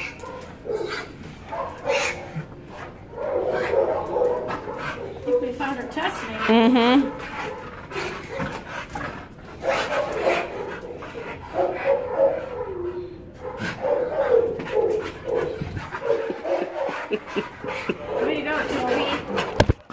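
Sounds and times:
dogs yipping and whining: 0:00.0 - 0:19.7.

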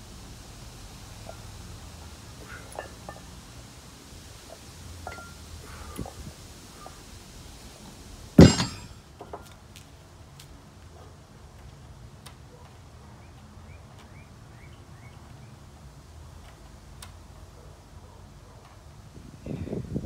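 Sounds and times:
metal dumbbells clanking down: 0:05.0 - 0:05.4, 0:08.4 - 0:09.4
birds chirping: 0:13.1 - 0:15.6.

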